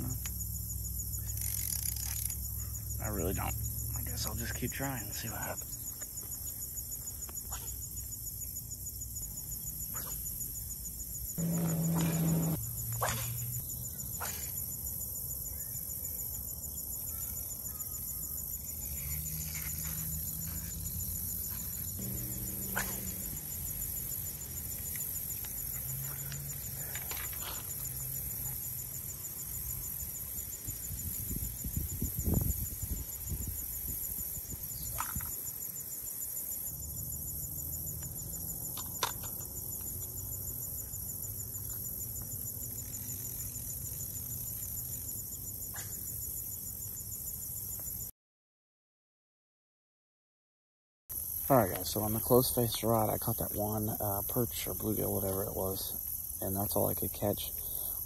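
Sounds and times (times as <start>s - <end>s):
insects chirring: 0.0s - 48.1s, 51.1s - 58.0s
low thumps: 11.4s - 12.6s
low hum: 11.4s - 12.7s, 22.0s - 24.8s.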